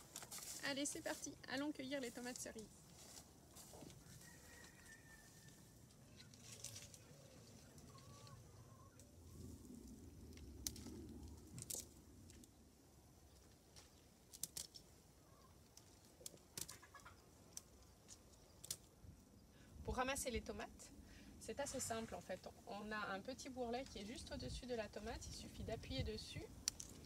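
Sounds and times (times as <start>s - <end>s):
faint bird calls: 4.2s - 9.4s, 15.2s - 15.6s
tomatoes picked clicks and rustles: 5.9s - 8.4s, 10.3s - 12.6s, 13.3s - 14.9s, 15.6s - 19.0s, 26.2s - 27.0s.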